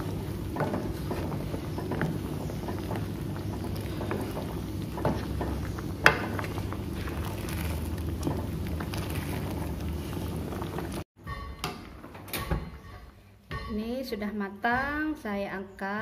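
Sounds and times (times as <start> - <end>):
ladle scraping a pot: 0.0 - 11.0
curry simmering in a pot: 0.0 - 11.1.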